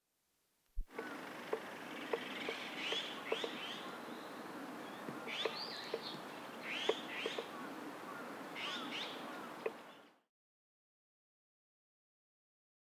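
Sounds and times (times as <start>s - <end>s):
woodpecker tapping wood: 0.8s - 3.6s, 5.0s - 7.5s, 9.6s - 9.8s.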